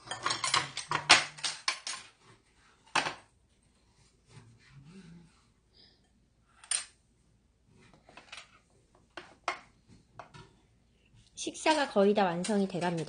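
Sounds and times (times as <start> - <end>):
plates and cutlery clinking: 0.0 - 2.2.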